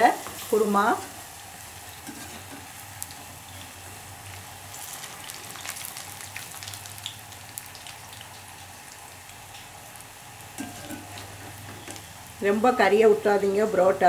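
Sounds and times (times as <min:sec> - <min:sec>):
bread deep-frying in hot oil: 0:00.0 - 0:14.0
oil crackling and popping: 0:01.4 - 0:12.4.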